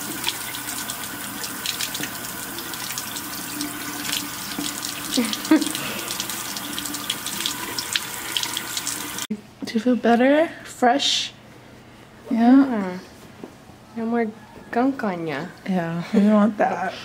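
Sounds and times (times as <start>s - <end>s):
water running from sink tap: 0.0s - 9.3s.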